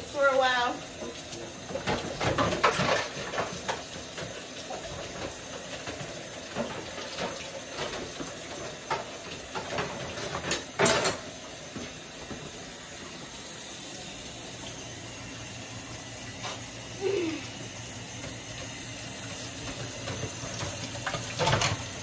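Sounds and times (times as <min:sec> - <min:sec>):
steaming pot hiss: 0:11.2 - 0:22.0.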